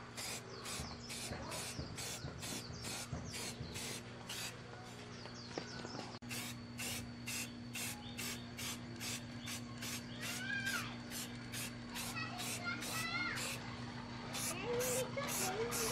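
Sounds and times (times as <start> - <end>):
steady low hum: 0.0 - 15.9
spray-paint can hissing: 0.1 - 4.5, 6.2 - 10.4, 11.1 - 13.6, 14.4 - 15.9.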